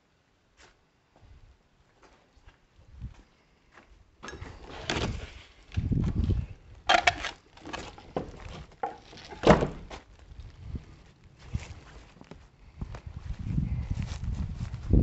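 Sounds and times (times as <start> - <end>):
door scraping: 7.1 - 9.9
old wooden door pushed open: 7.6 - 9.9.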